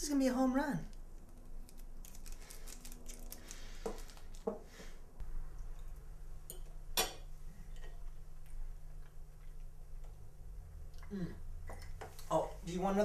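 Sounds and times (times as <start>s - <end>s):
candy wrapper crinkling: 0.9s - 4.4s.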